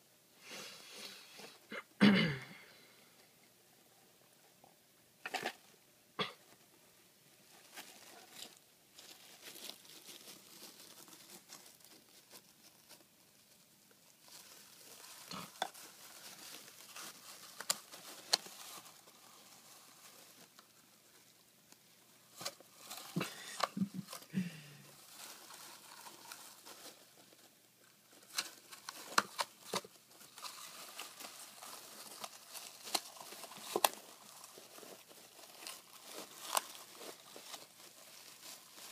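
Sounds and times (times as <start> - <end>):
wood shavings rustling: 7.5 - 21.3, 22.0 - 38.9.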